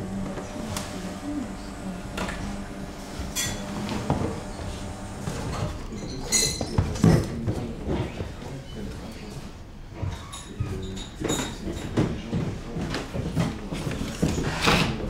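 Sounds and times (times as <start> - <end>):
crockery and cutlery clinking: 5.3 - 7.7, 10.0 - 15.0.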